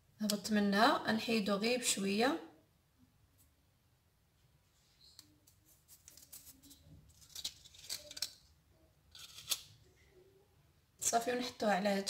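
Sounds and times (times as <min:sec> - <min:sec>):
paper crinkling: 0:05.4 - 0:08.4.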